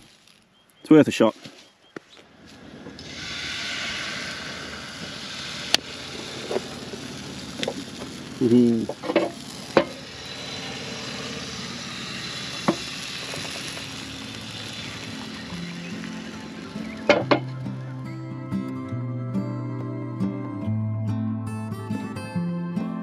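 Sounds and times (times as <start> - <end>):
food sizzling in a frying pan: 3.0 - 17.6.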